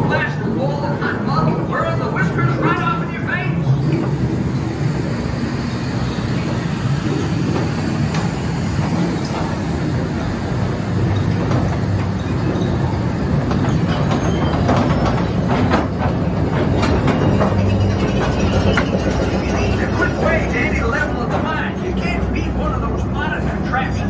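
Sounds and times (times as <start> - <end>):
train cars rumbling: 0.0 - 24.0
wheels clacking on rails: 0.0 - 24.0.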